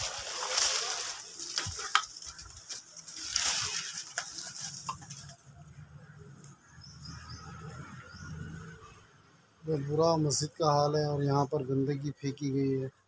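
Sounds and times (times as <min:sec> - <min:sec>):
footsteps through dry leaves: 0:00.0 - 0:05.4.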